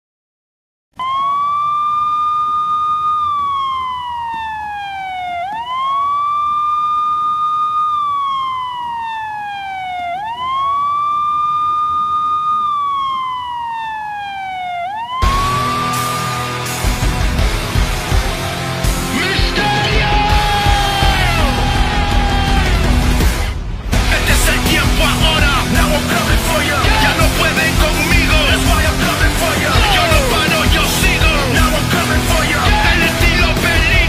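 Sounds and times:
police siren wailing: 1.0s - 34.0s
loud music: 15.2s - 34.0s.

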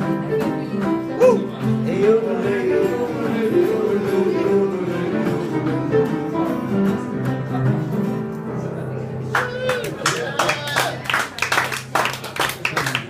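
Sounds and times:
blues on lap steel acoustic guitar: 0.0s - 9.2s.

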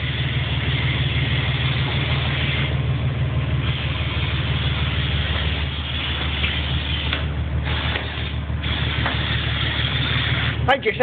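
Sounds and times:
motor humming: 0.0s - 11.0s
hiss: 3.6s - 10.6s.

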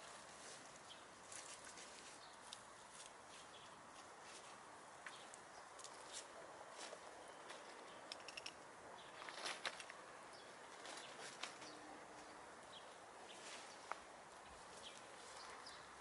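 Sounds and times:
hens rustling in leaves: 0.0s - 4.8s, 10.5s - 16.0s
sharp clicks: 8.1s - 8.6s.

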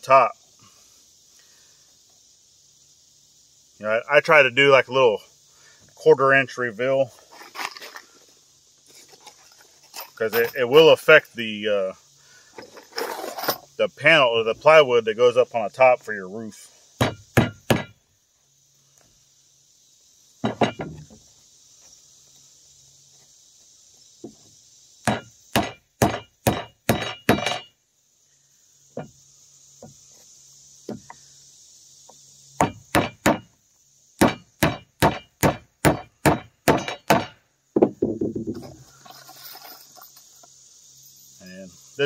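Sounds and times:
hammer driving nails into wood: 25.1s - 27.7s, 34.2s - 37.9s.

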